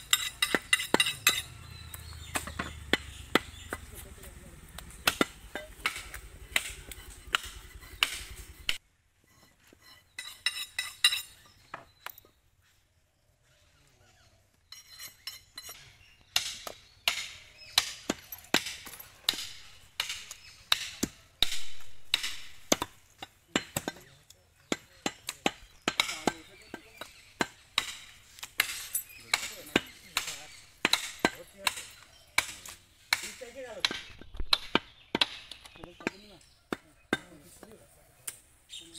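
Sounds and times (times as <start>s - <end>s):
knife chopping on wooden block: 5.0s - 8.8s.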